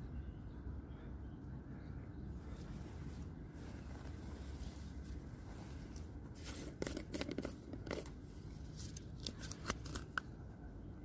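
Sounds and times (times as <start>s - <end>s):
steady low rumble: 0.0s - 11.0s
plastic tub crackling and crunching: 4.1s - 10.3s.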